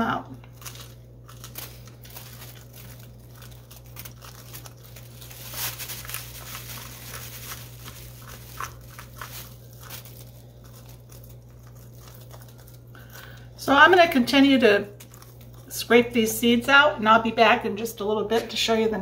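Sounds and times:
seeds dropping on plastic bag: 0.4s - 13.5s.

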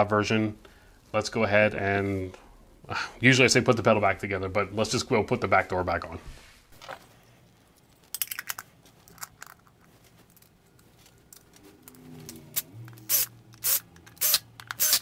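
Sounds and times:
sharp drill clicks: 13.0s - 15.0s
cordless drill driving a screw: 13.1s - 15.0s.

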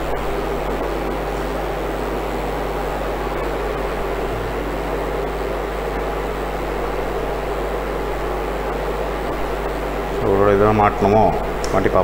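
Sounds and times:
cooling unit fan rushing: 0.0s - 12.0s
low hum: 2.6s - 9.8s.

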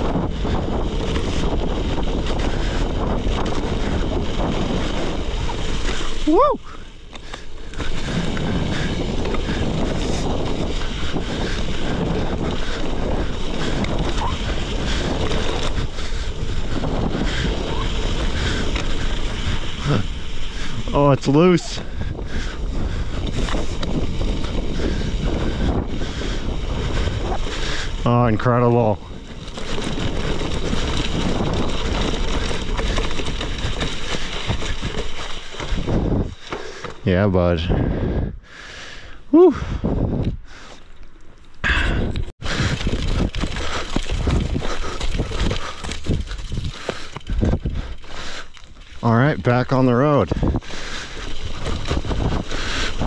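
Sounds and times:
wind rushing over microphone: 0.0s - 40.7s, 41.6s - 53.0s
bike tyres on gravel: 0.0s - 53.0s
tyres crunching over stones: 27.4s - 37.3s, 42.2s - 53.0s.

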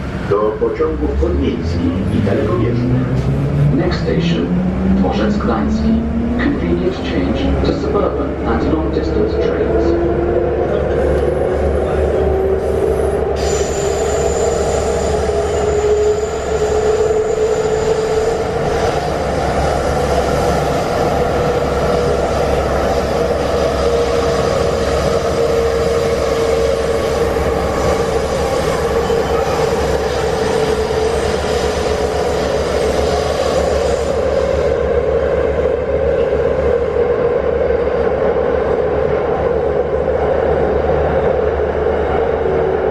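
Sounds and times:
metro car rumble: 0.0s - 42.9s
train whine rising in pitch: 9.9s - 19.0s.

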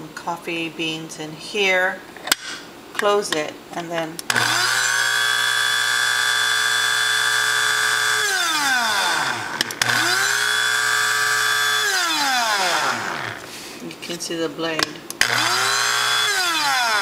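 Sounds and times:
coffee grinder whining: 4.3s - 13.5s, 15.2s - 17.0s.

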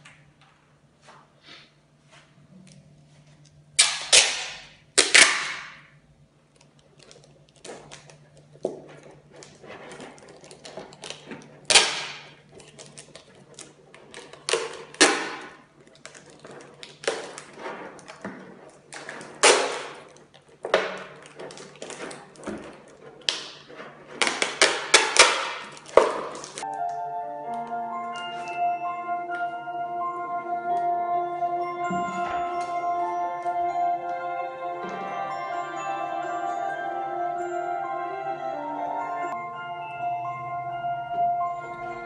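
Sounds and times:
packing tape ripping: 3.8s - 5.8s, 10.0s - 18.2s, 18.8s - 26.7s
plastic bottles crinkling: 3.8s - 26.8s.

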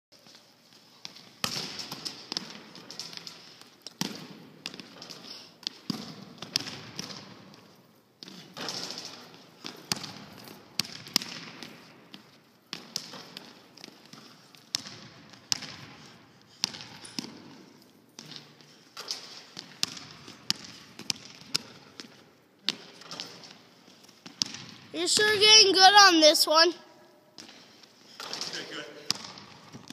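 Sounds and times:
basketball bouncing on wooden floor: 1.0s - 3.3s, 3.9s - 16.0s, 16.6s - 17.6s, 18.2s - 23.6s, 24.2s - 25.2s, 28.2s - 29.9s
basketball hitting hoop: 5.8s - 7.3s, 8.6s - 11.8s, 28.2s - 29.9s.

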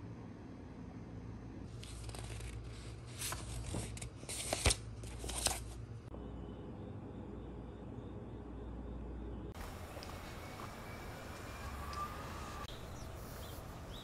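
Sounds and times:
paper pages rustling: 1.7s - 5.8s.

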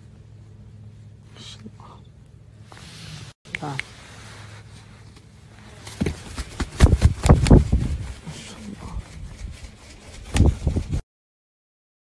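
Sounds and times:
parrot wings flapping: 5.7s - 11.0s.

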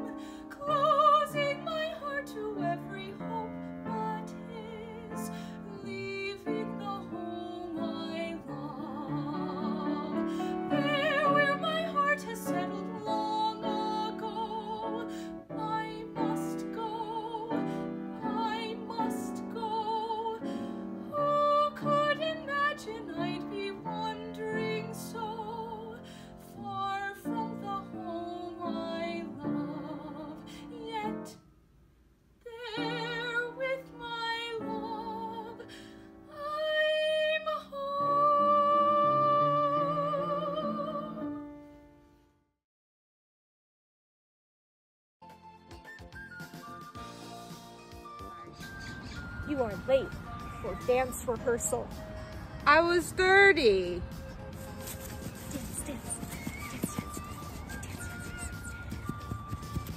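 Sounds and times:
woman singing operatically: 0.0s - 20.5s, 21.1s - 31.4s, 32.5s - 35.7s, 36.3s - 41.4s.

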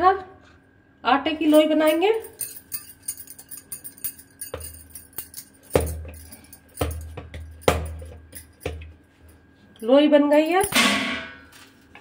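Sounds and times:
glass bangles clinking: 1.6s - 8.9s, 10.3s - 10.8s.

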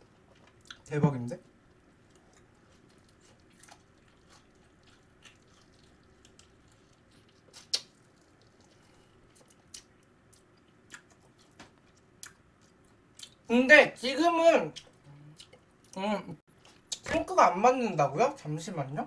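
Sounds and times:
close-up chewing: 0.0s - 0.9s, 1.5s - 13.5s
wet mouth clicks: 7.5s - 8.6s.

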